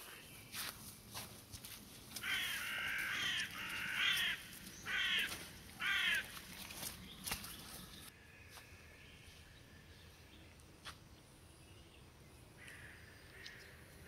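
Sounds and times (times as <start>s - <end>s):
footsteps on muddy trail: 0.0s - 8.7s
crow cawing: 2.2s - 6.3s.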